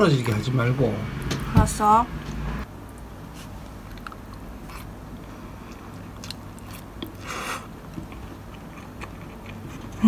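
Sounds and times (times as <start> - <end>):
soft chewing: 2.9 - 10.0.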